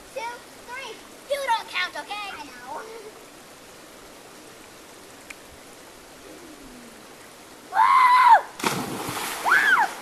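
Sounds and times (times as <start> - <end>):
river water running: 0.0 - 10.0
splash into water: 8.6 - 10.0.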